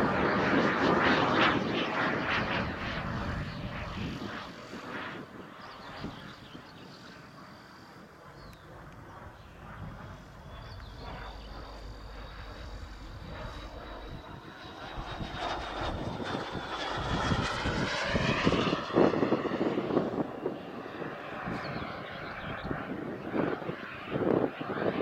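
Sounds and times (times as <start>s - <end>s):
model jet turbine whine: 0.0s - 25.0s.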